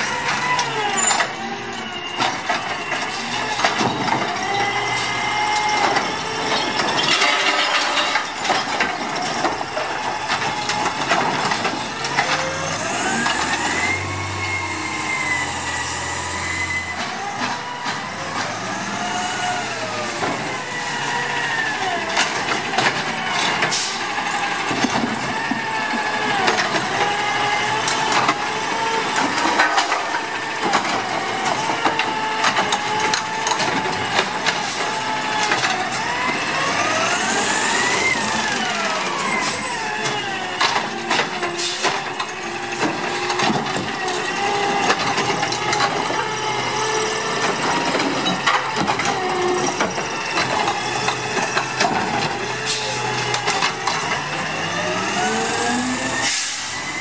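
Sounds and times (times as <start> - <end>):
garbage truck engine running: 0.0 - 57.0
mechanical arm clanking on cart: 0.2 - 15.6, 16.6 - 57.0
air brake hissing: 52.6 - 53.1, 56.2 - 56.9.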